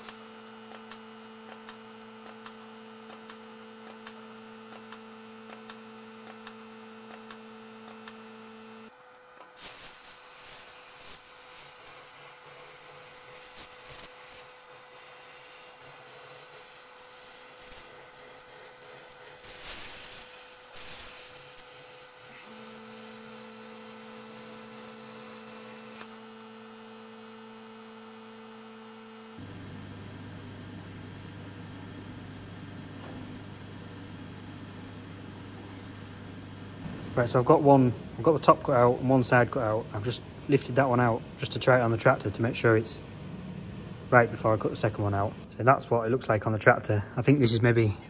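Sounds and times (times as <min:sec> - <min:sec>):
electrical hum with ticking: 0:00.0 - 0:09.6, 0:10.4 - 0:48.0
plasma arc hissing: 0:00.0 - 0:29.5.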